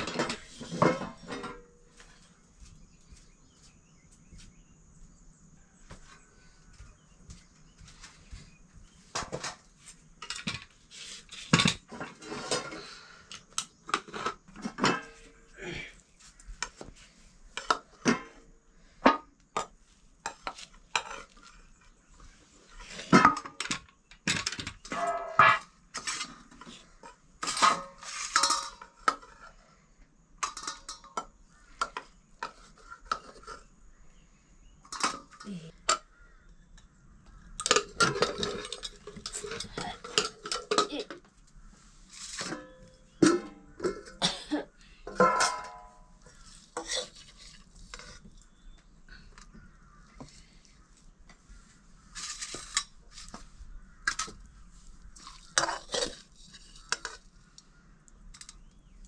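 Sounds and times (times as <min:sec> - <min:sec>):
dishes and cutlery clinking: 0:23.2 - 0:26.7, 0:37.6 - 0:41.2, 0:45.1 - 0:48.2, 0:55.2 - 0:57.2.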